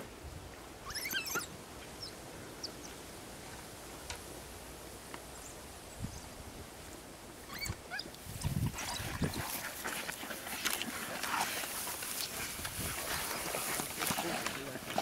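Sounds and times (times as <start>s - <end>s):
wild dogs chirping: 0.8s - 2.9s, 7.4s - 15.0s
animals feeding noises: 6.9s - 15.0s.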